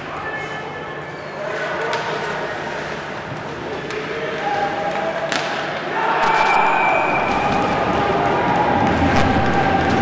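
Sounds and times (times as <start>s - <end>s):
players and spectators shouting: 4.0s - 10.0s.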